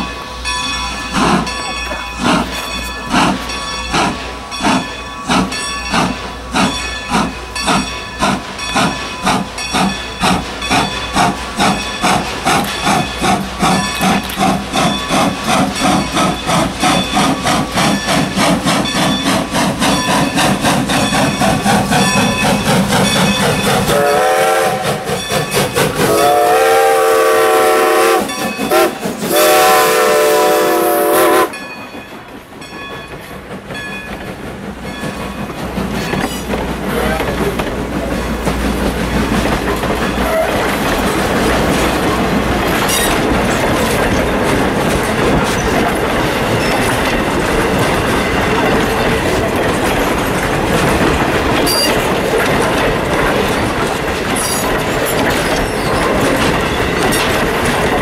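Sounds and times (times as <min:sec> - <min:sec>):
steam locomotive exhaust chuffs: 0:00.0 - 0:58.0
steam whistle blowing: 0:23.9 - 0:25.1, 0:26.0 - 0:31.6.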